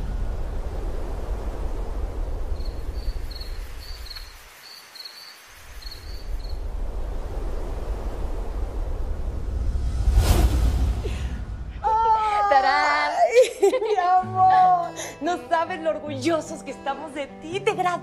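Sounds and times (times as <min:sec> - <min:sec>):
low rumbling ambience: 0:00.0 - 0:03.9, 0:06.2 - 0:12.3
crickets chirping: 0:00.0 - 0:10.0.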